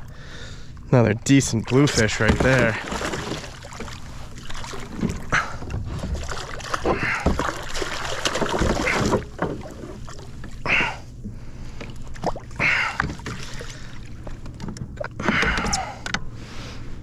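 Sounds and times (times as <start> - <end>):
fish splashing at the surface: 2.3 - 4.9, 6.2 - 9.3.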